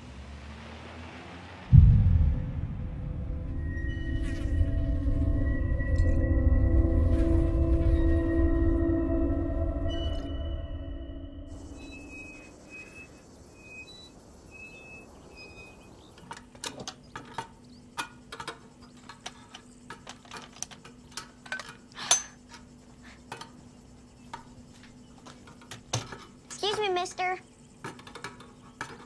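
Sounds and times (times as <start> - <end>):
glass and metal clinking: 16.4 - 22.7.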